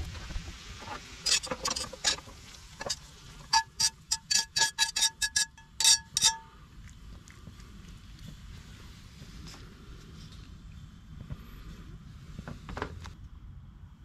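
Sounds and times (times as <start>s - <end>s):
metal tongs clinking on skillets: 2.8s - 6.5s.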